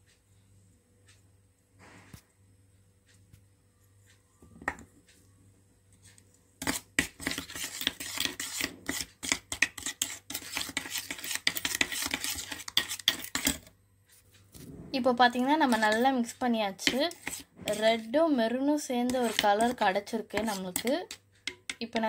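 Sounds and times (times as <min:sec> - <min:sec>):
spoon scraping paint in a bowl: 0:05.9 - 0:14.6, 0:15.2 - 0:22.0.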